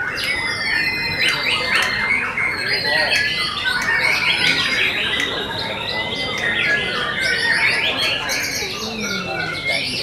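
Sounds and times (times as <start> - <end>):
bird singing whistles and chatter: 0.0 - 10.0.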